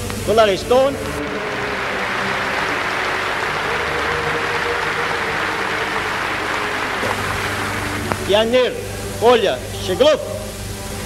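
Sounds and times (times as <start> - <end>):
low steady hum: 0.0 - 11.0
audience applause: 0.6 - 9.0.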